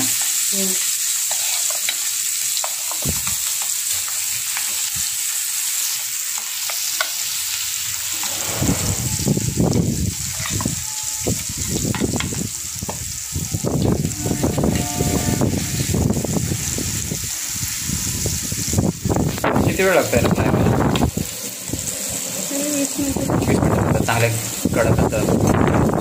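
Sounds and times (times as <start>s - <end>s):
fish sizzling in hot oil: 0.0s - 26.0s
low rumbling noise: 8.0s - 11.8s, 13.2s - 21.9s.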